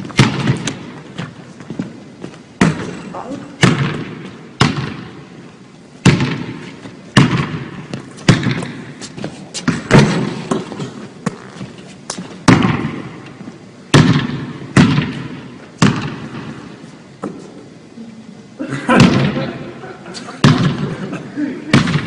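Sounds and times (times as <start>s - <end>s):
basketball bouncing on hardwood floor: 7.2s - 8.8s, 9.6s - 13.0s.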